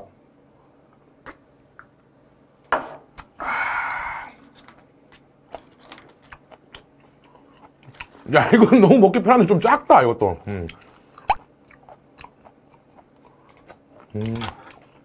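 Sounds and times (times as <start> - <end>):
man's loud breathy exhale: 3.4 - 4.4
chewing and mouth clicks: 4.6 - 8.3, 10.4 - 15.0.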